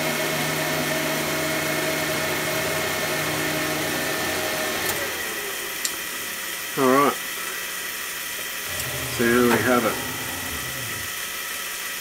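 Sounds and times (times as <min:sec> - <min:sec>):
printer motors whirring hum: 0:01.7 - 0:06.2, 0:08.6 - 0:11.2.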